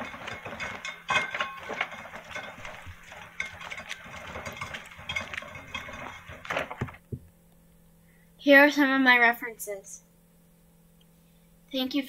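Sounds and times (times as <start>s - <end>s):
wheelbarrow clattering: 0.0s - 7.2s
footsteps: 0.0s - 7.3s.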